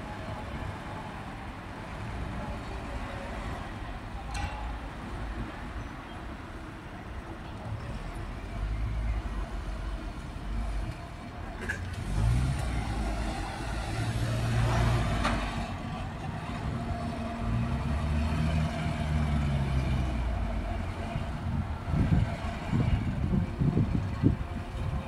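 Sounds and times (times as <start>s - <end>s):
heavy diesel engine revving: 11.8s - 24.6s.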